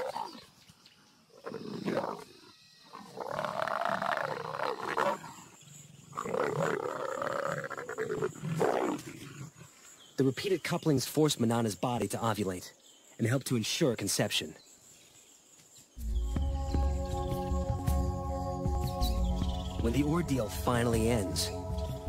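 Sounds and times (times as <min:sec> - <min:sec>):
leopards growling: 0:01.3 - 0:09.9.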